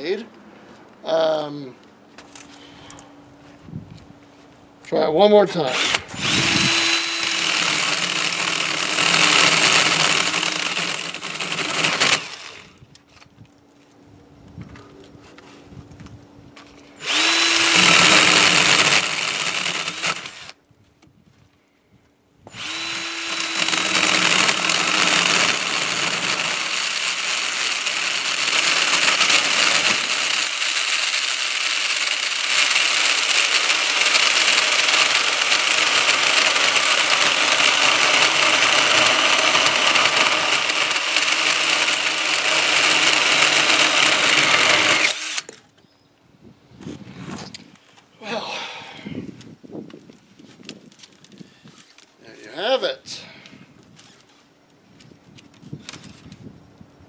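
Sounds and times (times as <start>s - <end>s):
drill chainsaw cutting branch: 5.6s - 12.8s, 17.0s - 20.6s, 22.5s - 45.6s.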